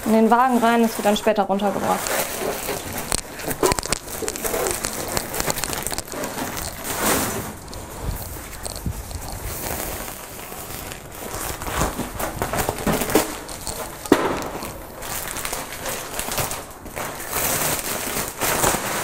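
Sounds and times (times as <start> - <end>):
plastic sack crinkling: 0.0 - 19.0
knocks and clatter: 11.3 - 15.6.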